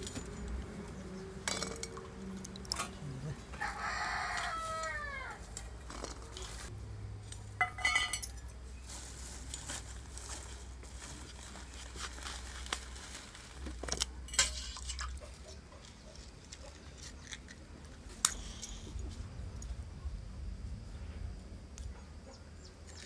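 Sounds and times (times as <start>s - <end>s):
steel bowls clinking: 1.4s - 3.0s, 7.6s - 8.5s.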